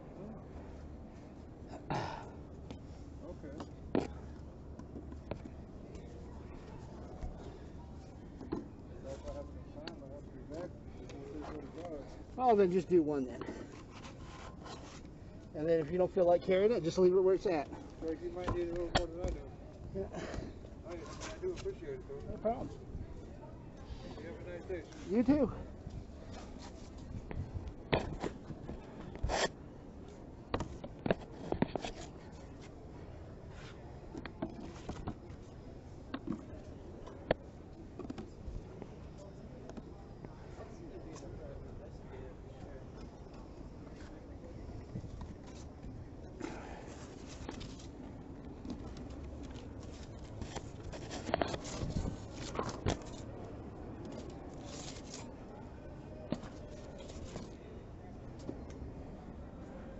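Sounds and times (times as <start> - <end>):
boards rubbing against camera: 13.5 - 15.1, 26.3 - 29.6, 30.5 - 32.7, 48.7 - 53.3.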